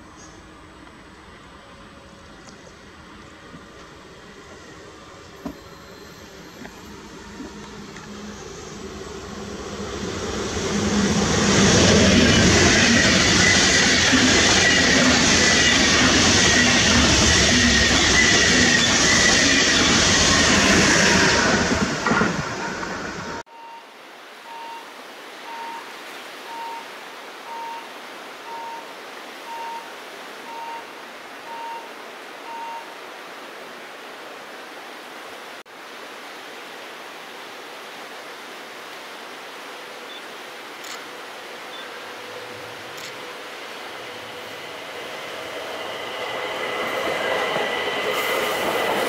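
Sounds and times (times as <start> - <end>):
train wheels whining: 0.2 - 23.4, 41.8 - 49.0
level crossing signal beeping: 4.5 - 33.0, 41.7 - 49.0
faint steady hiss: 23.4 - 49.0.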